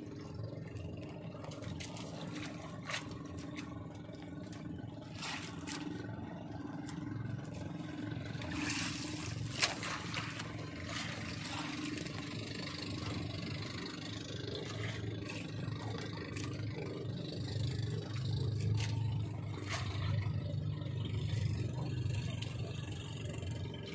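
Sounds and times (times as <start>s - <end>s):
boat engine droning: 0.0s - 23.9s.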